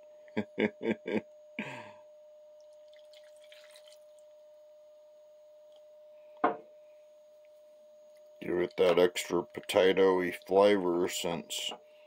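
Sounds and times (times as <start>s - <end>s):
faint steady hum: 0.0s - 12.0s
water trickling: 2.7s - 4.2s
water splashing and dripping: 2.8s - 4.1s.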